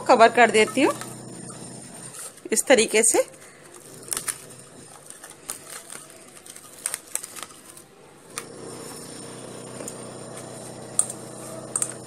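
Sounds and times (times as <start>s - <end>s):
cling film crinkling: 3.4s - 8.0s.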